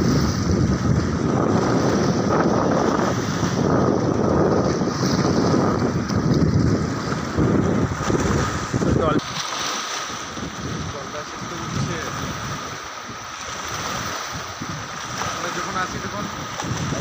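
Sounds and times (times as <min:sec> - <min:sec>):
choppy river water: 0:00.0 - 0:17.0
wind buffeting microphone: 0:00.0 - 0:17.0.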